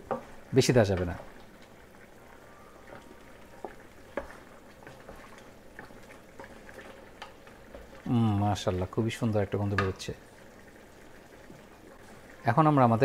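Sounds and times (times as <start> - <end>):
broth bubbling in pot: 0.0 - 13.0.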